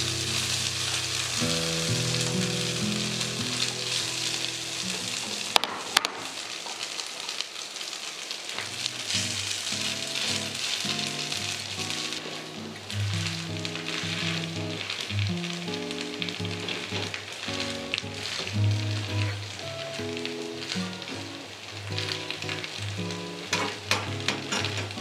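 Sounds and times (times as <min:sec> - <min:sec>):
potato frying sizzle: 0:00.0 - 0:25.0.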